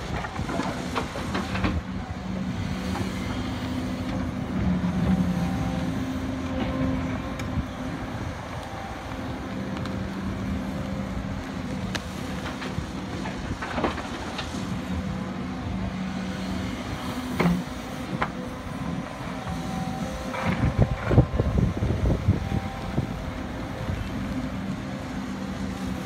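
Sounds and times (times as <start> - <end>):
excavator diesel engine and hydraulics: 0.0 - 26.0.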